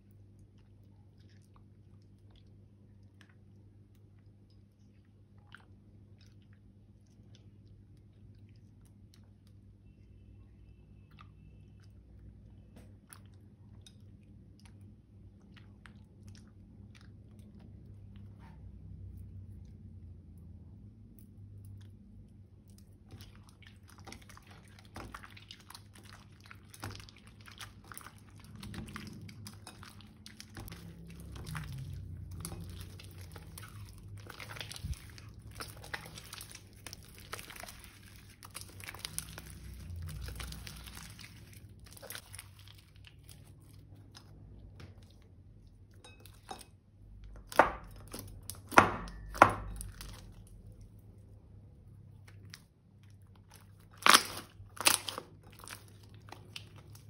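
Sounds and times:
slime popping: 53.9s - 57.0s.

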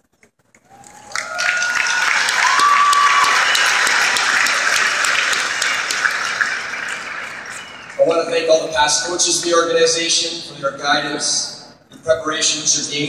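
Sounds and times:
crowd applauding: 0.6s - 9.6s.

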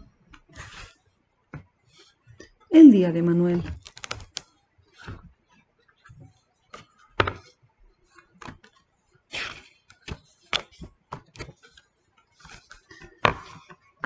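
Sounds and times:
book pages turning: 0.6s - 0.9s, 3.8s - 4.4s, 12.4s - 13.7s.

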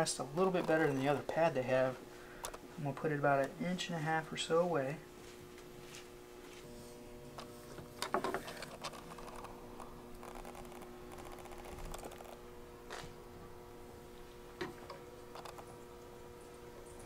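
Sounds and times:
steady hum: 0.0s - 17.0s
rattle: 10.2s - 12.4s.

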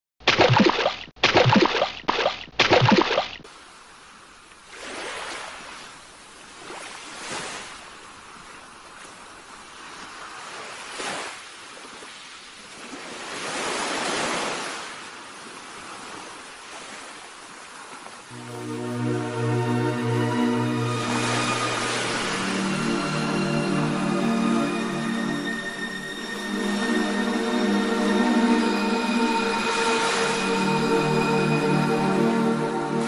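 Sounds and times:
waves washing on shore: 0.3s - 18.9s, 20.7s - 24.6s, 28.8s - 31.1s.

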